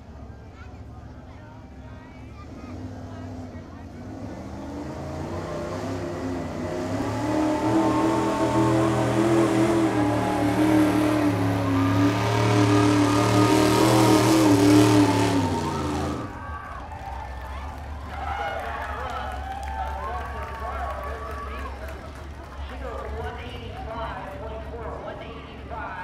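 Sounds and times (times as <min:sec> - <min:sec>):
pickup engine running hard: 0:00.0 - 0:18.1.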